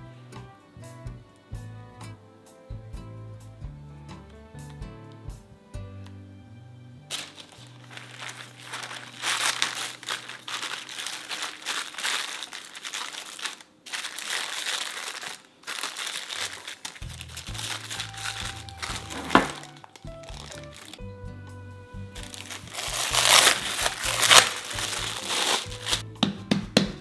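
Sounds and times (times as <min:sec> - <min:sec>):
plastic wrap crinkling: 0:07.1 - 0:21.0, 0:22.2 - 0:26.0.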